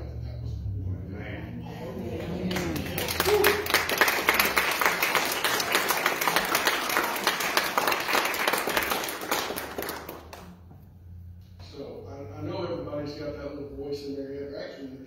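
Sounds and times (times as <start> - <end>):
congregation applauding: 2.2 - 10.6.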